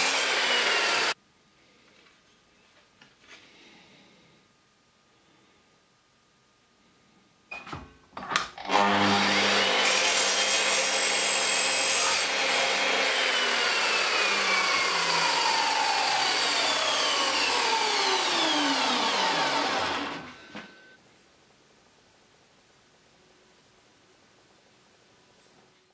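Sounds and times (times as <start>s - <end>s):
miter saw cutting copper pipe: 0.0s - 1.2s, 8.7s - 20.4s
saw blade winding down whine: 0.0s - 1.2s, 8.7s - 21.0s.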